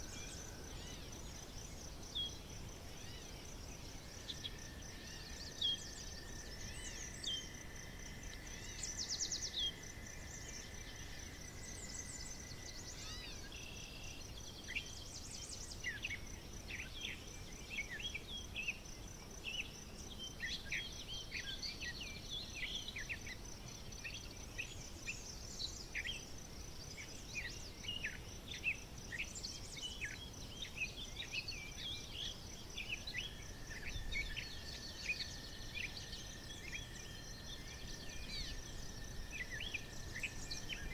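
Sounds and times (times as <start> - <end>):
high insect trill: 0.0 - 40.9
low steady whine: 0.0 - 40.9
birds singing and chirping: 11.6 - 40.9.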